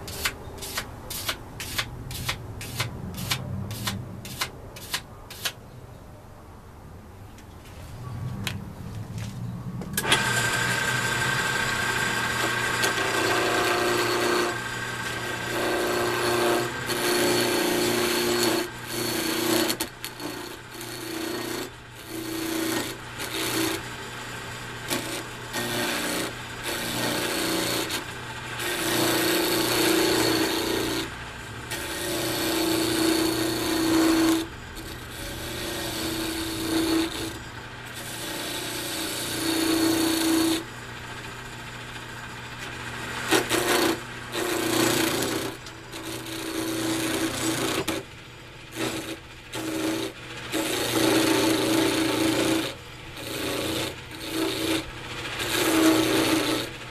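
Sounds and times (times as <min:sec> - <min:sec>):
turning tool scraping wood: 0:00.0 - 0:05.6, 0:10.0 - 0:40.7, 0:42.6 - 0:48.1, 0:48.7 - 0:56.9
lathe motor hum: 0:10.0 - 0:56.9.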